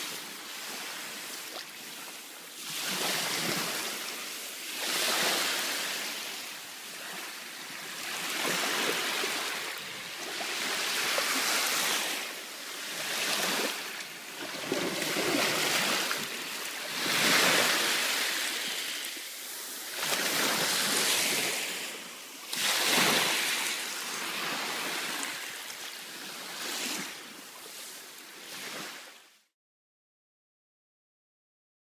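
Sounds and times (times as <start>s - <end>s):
waves washing up a sandy shore: 0.0s - 29.4s.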